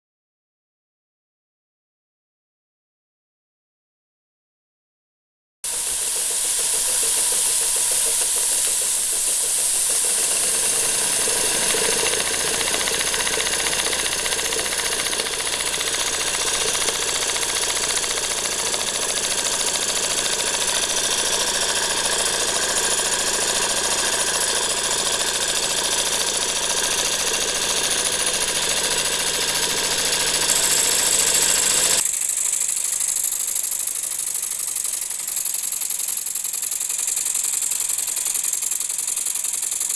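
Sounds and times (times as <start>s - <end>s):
high steam hiss: 5.7s - 14.2s
toy steam engine whirring: 5.7s - 39.9s.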